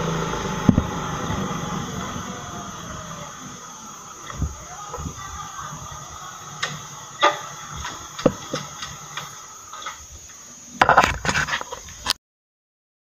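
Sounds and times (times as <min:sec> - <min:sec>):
motorcycle engine running: 0:00.0 - 0:10.2.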